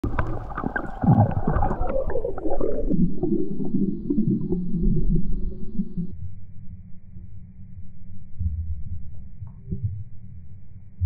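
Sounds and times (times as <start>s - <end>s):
underwater clicks: 0.0s - 3.0s
muffled underwater sloshing and bubbling: 0.0s - 6.1s.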